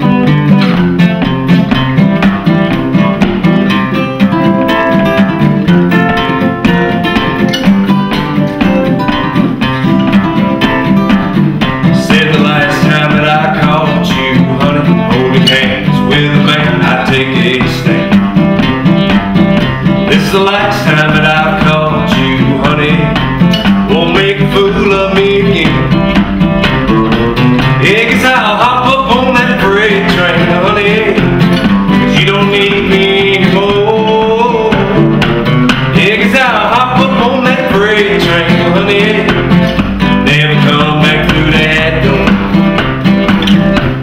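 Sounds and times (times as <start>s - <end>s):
acoustic guitars strumming and picking: 0.0s - 44.0s
man singing: 11.7s - 18.6s, 19.7s - 42.9s.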